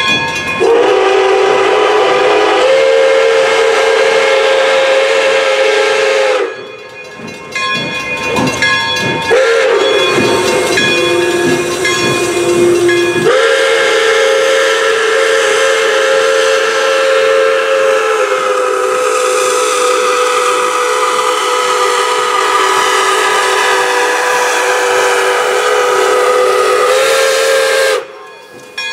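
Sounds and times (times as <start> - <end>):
bell ringing: 0.0 - 0.7, 6.5 - 13.4, 28.2 - 28.9
steam locomotive whistle: 0.6 - 6.8, 9.3 - 28.3.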